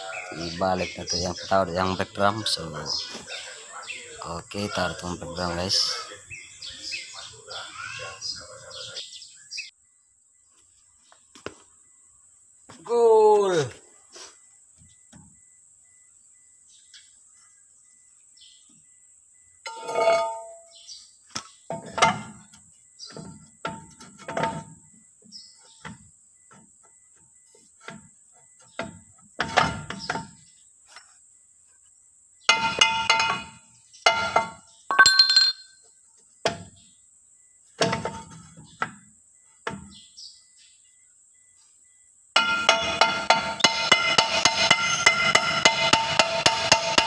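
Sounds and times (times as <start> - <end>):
metal brake drum clanking: 19.7 - 20.8, 21.7 - 24.9, 32.5 - 35.6, 42.4 - 47.0.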